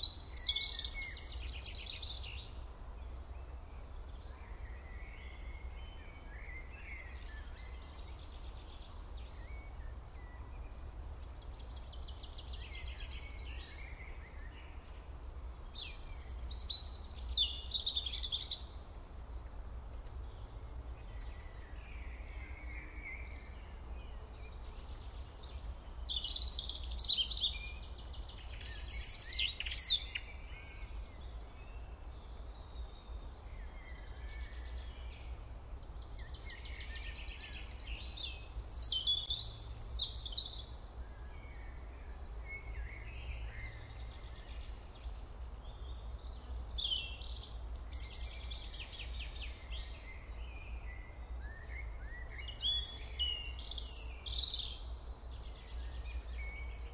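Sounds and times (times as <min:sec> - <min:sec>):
birds chirping: 0:19.8 - 0:56.9.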